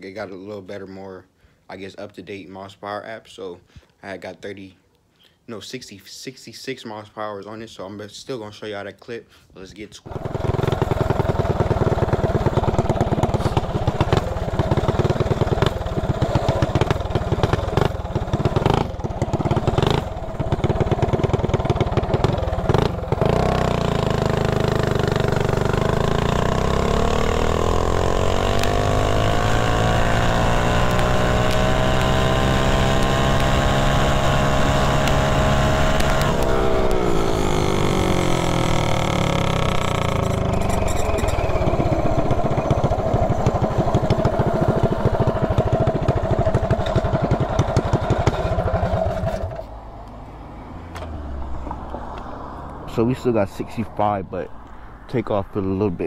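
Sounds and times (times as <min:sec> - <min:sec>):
mini bike engine revving: 0:10.1 - 0:49.7.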